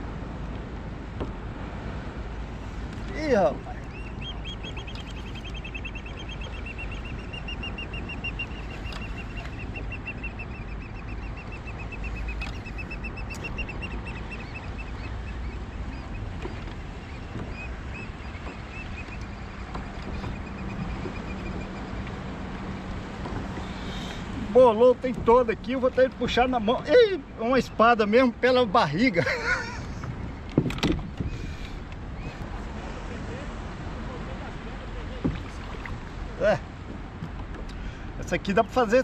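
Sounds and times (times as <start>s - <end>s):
water noise: 0.0s - 39.0s
wind: 0.0s - 39.0s.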